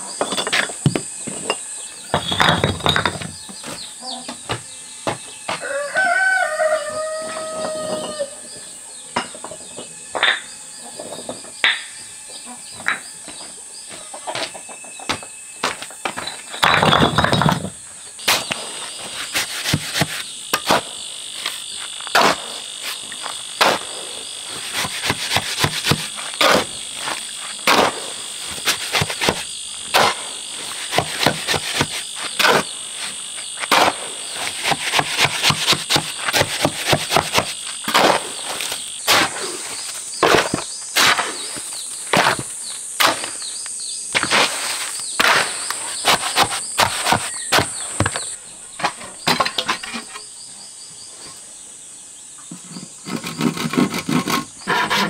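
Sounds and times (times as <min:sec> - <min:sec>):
insects droning: 0:00.0 - 0:55.0
rooster crowing: 0:05.5 - 0:08.6
shovel scraping mortar on concrete: 0:15.6 - 0:43.5, 0:44.1 - 0:50.3, 0:52.5 - 0:55.0.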